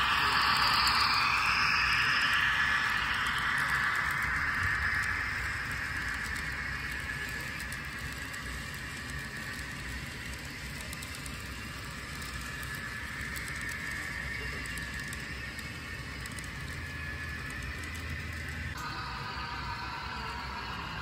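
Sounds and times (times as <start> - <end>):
high hiss: 0.0 - 8.5, 18.8 - 21.0
model train wheels whirring: 0.0 - 21.0.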